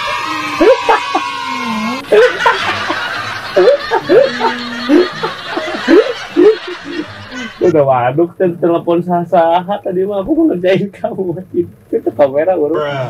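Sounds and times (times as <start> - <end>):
man snickering and laughing: 2.0 - 7.7.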